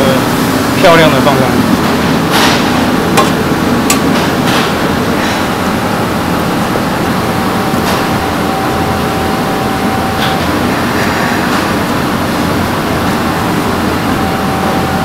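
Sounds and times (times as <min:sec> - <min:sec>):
gas burners roaring: 0:00.0 - 0:15.0
kitchen ventilation noise: 0:00.0 - 0:15.0
faint steady whine: 0:04.8 - 0:15.0.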